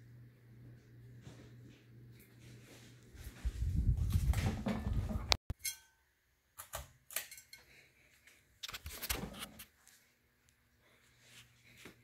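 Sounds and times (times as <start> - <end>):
ceiling fan air buffeting microphone: 0.0 - 5.4.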